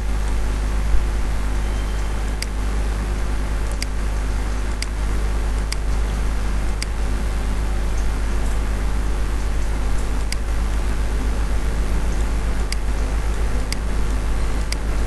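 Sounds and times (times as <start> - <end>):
low electrical hum and hiss: 0.0 - 15.0.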